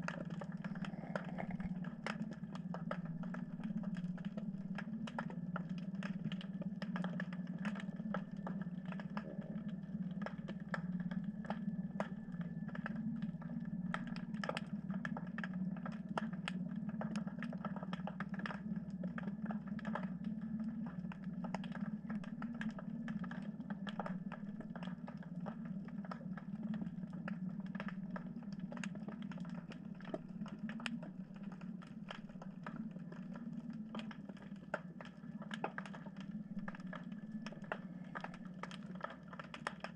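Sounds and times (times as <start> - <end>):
steady low hum: 0.0 - 5.4
underwater clicking and crackling: 0.0 - 39.9.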